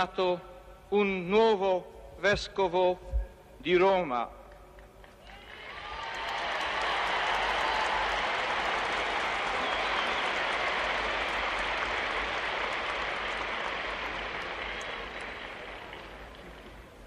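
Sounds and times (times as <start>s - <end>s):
large crowd applauding: 5.1s - 17.0s.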